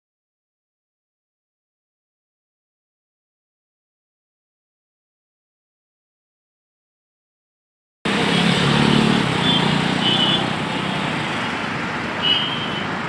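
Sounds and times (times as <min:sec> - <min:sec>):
road traffic passing: 0:08.1 - 0:13.0.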